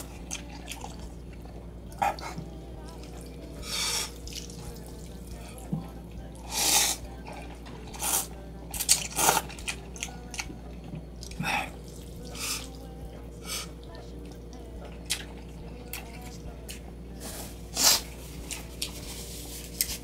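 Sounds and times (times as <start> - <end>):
person slurping noodles: 6.4 - 7.0, 7.9 - 9.6, 17.3 - 18.2.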